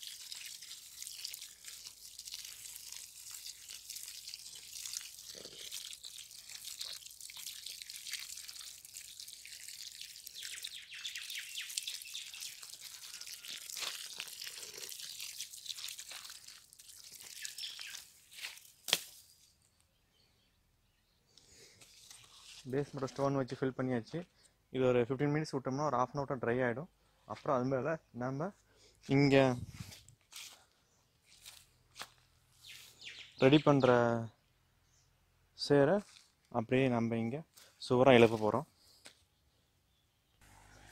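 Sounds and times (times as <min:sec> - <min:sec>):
slurry crackling and dripping: 0:00.0 - 0:19.5.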